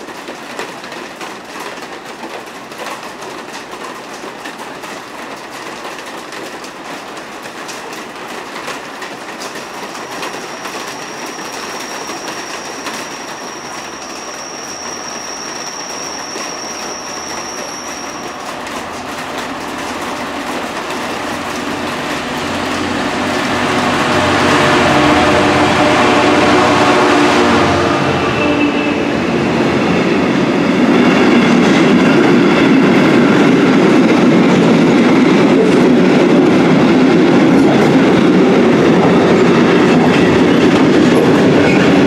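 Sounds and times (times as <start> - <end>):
train approaching: 0.0 - 42.0
rain hissing: 9.6 - 28.3
locomotive engine throbbing: 18.6 - 29.9.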